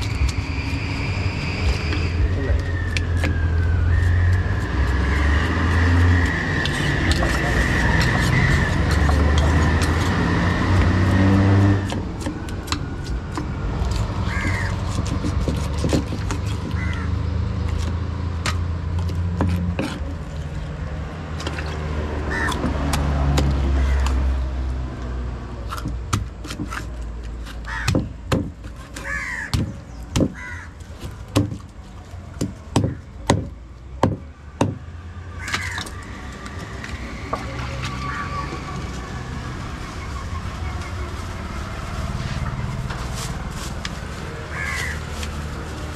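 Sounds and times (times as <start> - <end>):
vehicle engine rumble: 0.0 - 45.9
knife chopping on wooden block: 11.6 - 16.9, 25.7 - 31.7, 32.4 - 34.8
crows cawing: 14.2 - 14.9, 16.6 - 17.2, 22.3 - 22.6, 23.7 - 24.2, 27.6 - 28.1, 29.0 - 30.8, 32.8 - 33.1, 35.3 - 36.1, 38.0 - 38.5, 44.5 - 45.2.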